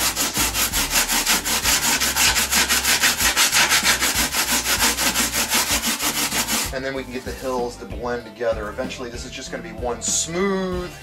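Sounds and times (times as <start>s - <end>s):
hand planer scraping foam: 0.0s - 7.8s.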